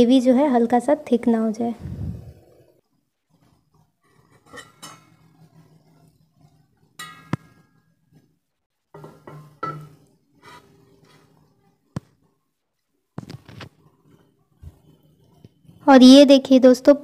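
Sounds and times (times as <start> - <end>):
steel cookware clinking: 4.2 - 6.0, 6.9 - 8.0, 8.9 - 11.2.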